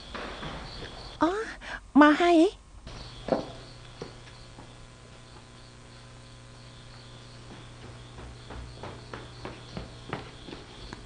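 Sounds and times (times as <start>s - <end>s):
crickets chirping: 0.0s - 11.0s
low steady hum: 0.0s - 11.0s
soft footsteps: 2.9s - 11.0s.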